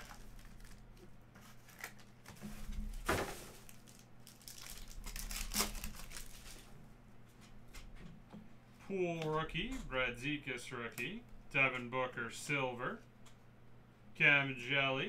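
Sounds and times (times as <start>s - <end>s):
wrapper being torn and crinkled: 0.0s - 2.3s, 3.4s - 6.7s.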